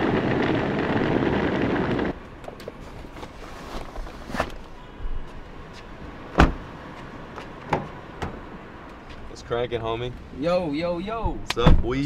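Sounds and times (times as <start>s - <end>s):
suitcase wheels rumbling on concrete: 0.0s - 4.6s.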